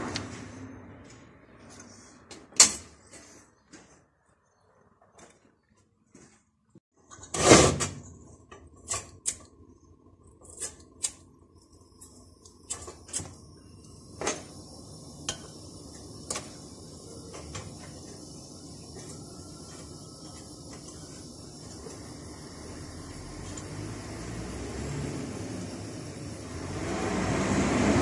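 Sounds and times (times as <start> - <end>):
gas stove burner hissing: 7.4 - 28.0.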